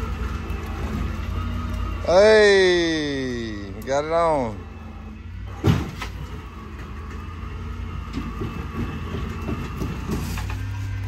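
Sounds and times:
heavy machinery running: 0.0s - 11.0s
metal clanks and creaks: 5.4s - 11.0s.

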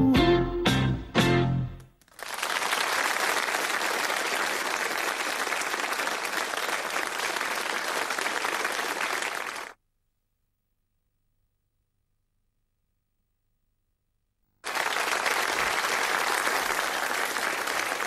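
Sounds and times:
audience applauding: 2.0s - 9.8s, 14.6s - 18.0s.

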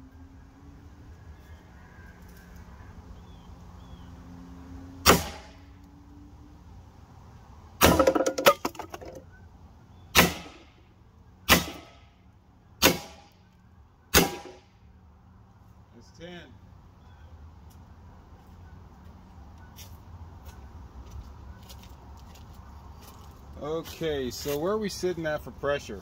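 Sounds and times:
air pistol shots: 5.0s - 5.5s, 10.1s - 10.7s, 11.5s - 12.0s, 12.8s - 13.3s, 14.1s - 14.6s
metallic clatter: 7.8s - 9.2s.

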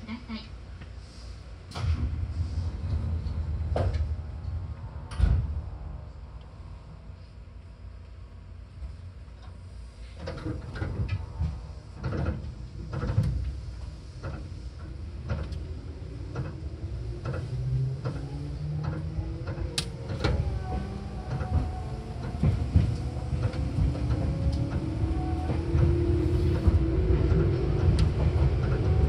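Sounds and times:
train rumble: 0.0s - 29.0s
clunks and knocks from train equipment: 2.8s - 4.2s, 5.0s - 5.7s, 9.4s - 20.5s.

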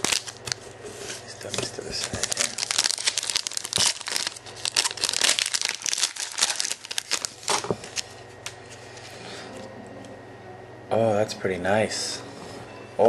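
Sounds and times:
foil wrapper crinkling and tearing: 0.0s - 8.2s.

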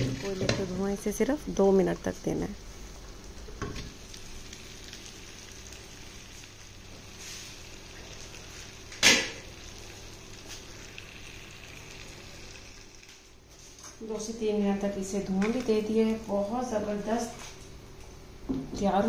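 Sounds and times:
meat sizzling on hot griddle: 2.7s - 13.4s
sharp loud sizzle burst: 2.7s - 13.4s.

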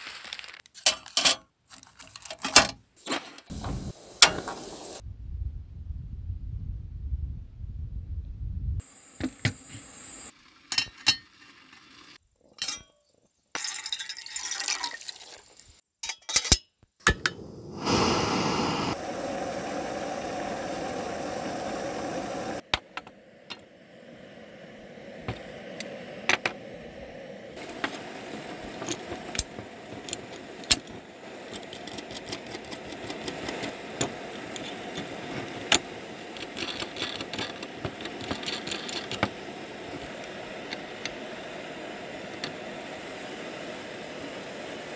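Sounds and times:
metal parts clicking and clinking: 0.7s - 2.8s, 12.6s - 13.0s, 28.8s - 39.4s
faint steady hiss: 3.0s - 5.0s, 17.1s - 44.9s
gas stove rushing: 3.5s - 5.0s, 17.1s - 44.9s.

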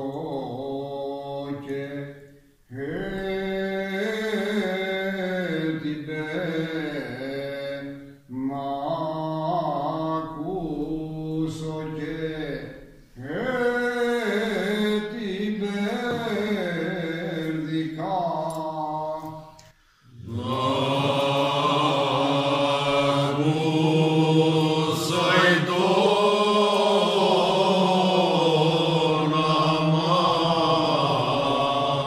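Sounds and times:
voices singing together: 0.0s - 12.6s, 13.2s - 32.0s
man singing unaccompanied: 0.0s - 19.6s, 20.3s - 32.0s.

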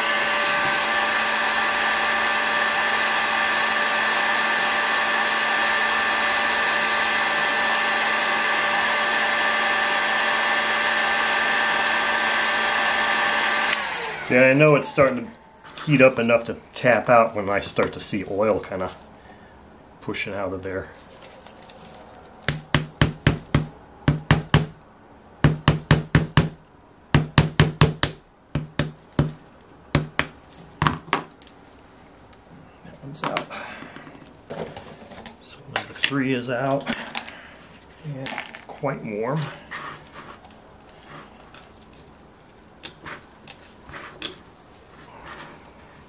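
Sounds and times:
heat gun blowing air: 0.0s - 16.0s
fan motor whine: 0.0s - 19.7s.

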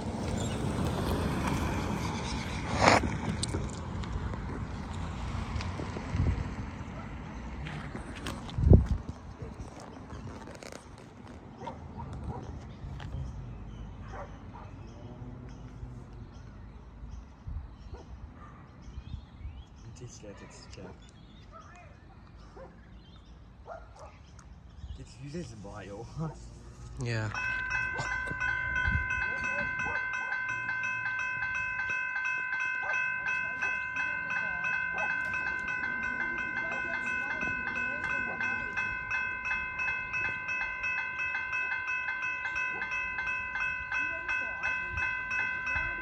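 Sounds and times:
dog barking: 11.6s - 12.6s, 14.0s - 14.8s, 17.9s - 18.8s, 20.3s - 22.8s, 23.6s - 24.2s, 29.7s - 30.4s, 32.8s - 33.0s, 35.0s - 35.2s
level crossing warning bell: 27.0s - 46.0s.

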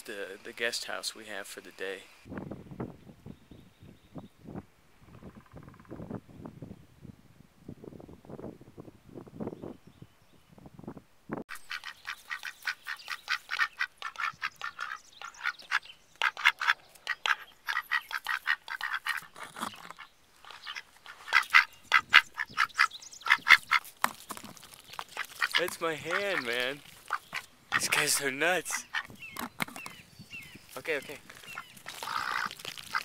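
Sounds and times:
ducks quacking: 11.5s - 23.9s, 25.1s - 29.5s, 30.8s - 33.0s.

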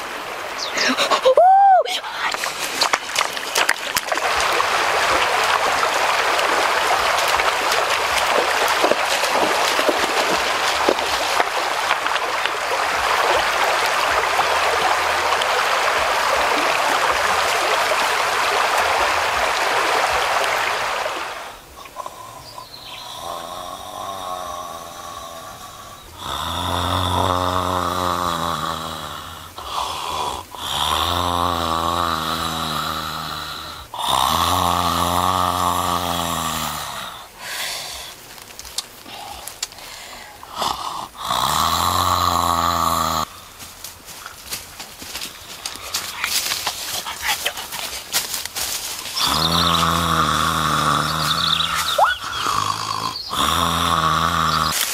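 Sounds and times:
river water running over stones: 0.0s - 54.9s
man snoring loudly: 23.1s - 37.3s, 40.5s - 43.3s, 49.1s - 54.9s.

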